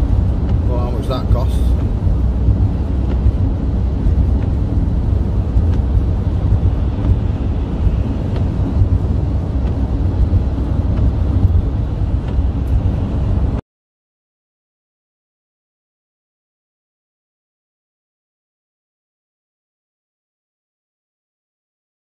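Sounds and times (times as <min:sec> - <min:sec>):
tyres on wet road: 0:00.0 - 0:13.6
van engine rumble: 0:00.0 - 0:13.6.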